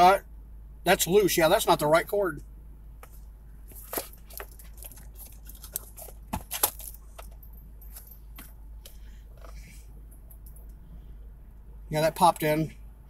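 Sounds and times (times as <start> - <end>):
phone and cord clicks and rustles: 3.0 - 9.7.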